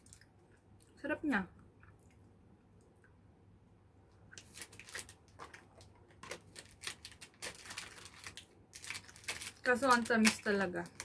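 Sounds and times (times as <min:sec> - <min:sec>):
packaging crinkling: 0:04.4 - 0:11.0.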